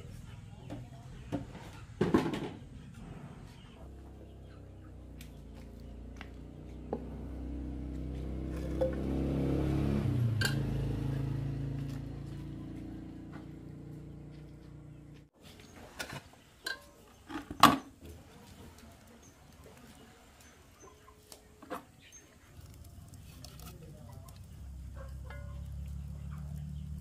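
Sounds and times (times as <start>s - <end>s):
vehicle engine passing by: 2.9s - 15.3s, 22.5s - 27.0s.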